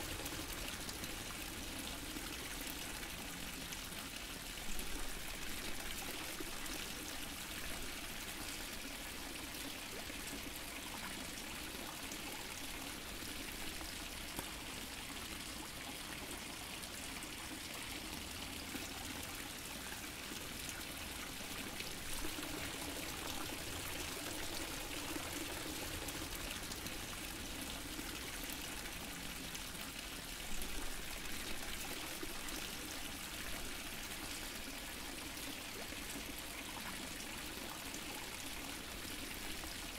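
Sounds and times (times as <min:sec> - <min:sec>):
fountain water splashing: 0:08.3 - 0:39.9.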